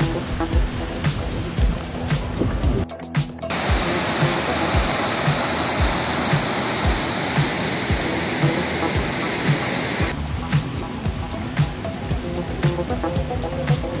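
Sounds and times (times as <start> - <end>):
background music with soft beat: 0.0 - 14.0
water pouring over waterfall: 3.5 - 10.2.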